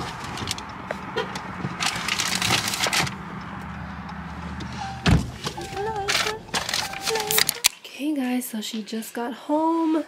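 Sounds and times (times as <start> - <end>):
low hum of car cabin: 4.0 - 7.5.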